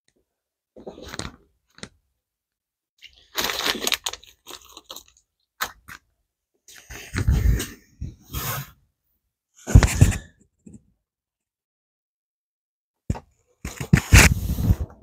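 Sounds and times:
crunching and crackling handling noises: 3.0s - 6.1s.

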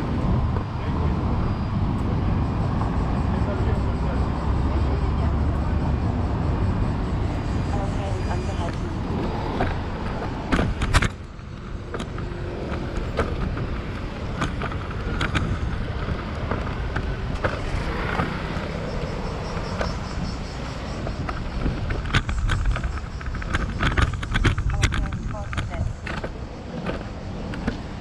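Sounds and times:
rumble of passing vehicles: 0.0s - 28.0s
wind on microphone: 0.0s - 28.0s
sharp clicks and knocks: 8.6s - 20.3s, 21.0s - 27.9s.

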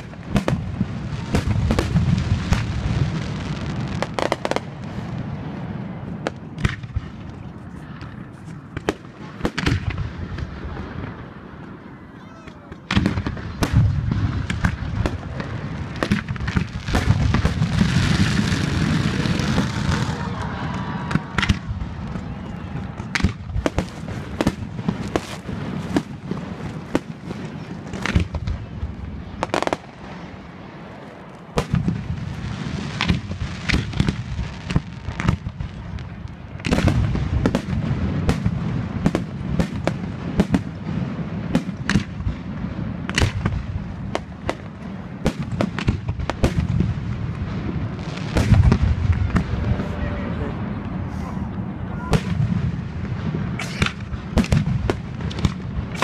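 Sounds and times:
fireworks bangs and crackles: 0.0s - 56.0s.

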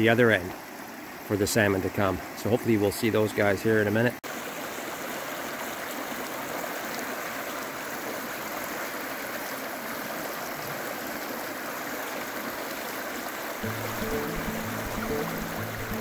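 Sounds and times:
river flowing over rocks: 4.3s - 16.0s.

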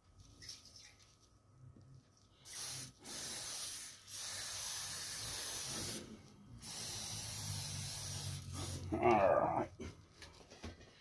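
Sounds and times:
aerosol spray hissing: 2.4s - 9.0s.

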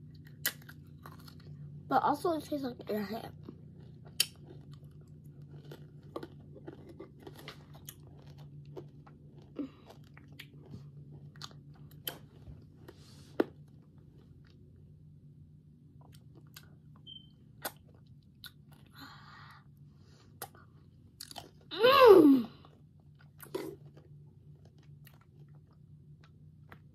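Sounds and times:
child chewing and sucking candy: 0.0s - 1.6s, 2.4s - 14.6s, 22.5s - 26.9s
steady low hum: 0.0s - 26.9s.

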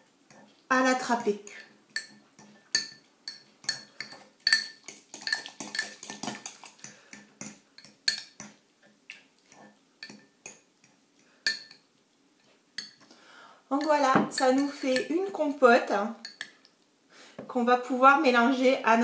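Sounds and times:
fork clinking on ceramic bowl: 1.5s - 8.6s.

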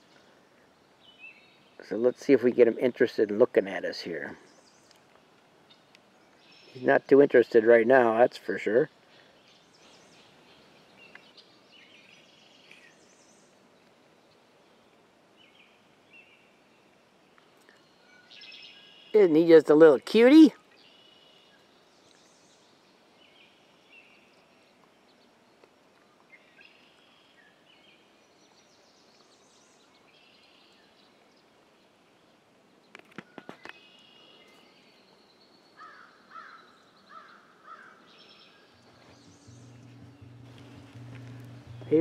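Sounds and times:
faint birdsong: 0.0s - 42.0s
guitar music: 38.8s - 42.0s.

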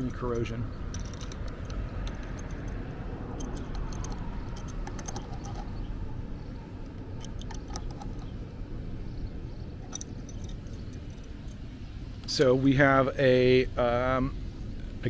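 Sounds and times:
metal wrench clicks and clinks: 0.0s - 5.8s, 7.2s - 8.3s, 9.8s - 11.6s
low background rumble: 0.0s - 15.0s.

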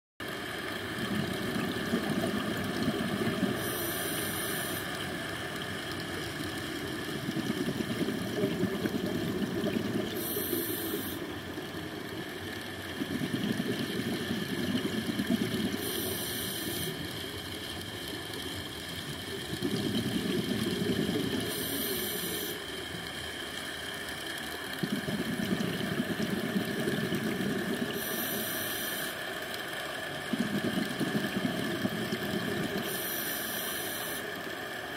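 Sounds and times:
exhaled bubbles rumbling underwater: 0.6s - 29.1s, 30.0s - 34.4s
regulator inhale hiss: 2.4s - 6.0s, 7.9s - 11.4s, 13.1s - 17.4s, 20.0s - 22.8s, 26.8s - 29.5s, 30.4s - 34.6s.

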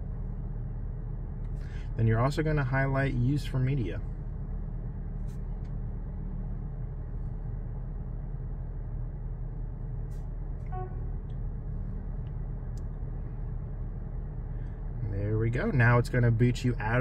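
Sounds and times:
car cabin low hum: 0.0s - 17.0s
brief pitched tone: 10.6s - 11.2s.

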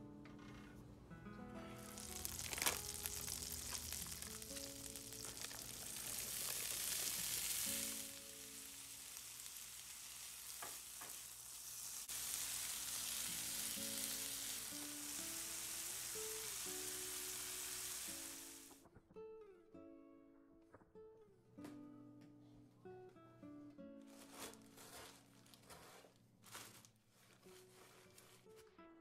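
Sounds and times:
soft music: 0.0s - 9.5s, 12.1s - 29.0s
butter and corn sizzling: 1.6s - 18.8s
sharp crack: 1.8s - 7.8s.

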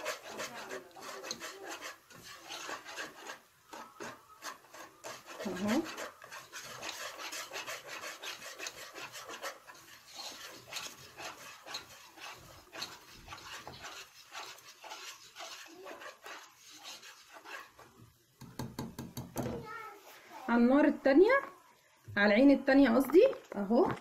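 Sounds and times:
wire whisk scraping a pot: 0.0s - 18.0s.

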